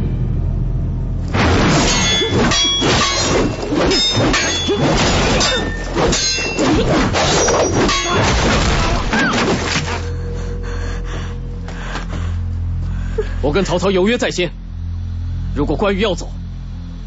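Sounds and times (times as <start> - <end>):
thuds and crashes: 1.2 - 10.1
steel blades clashing: 1.3 - 10.2.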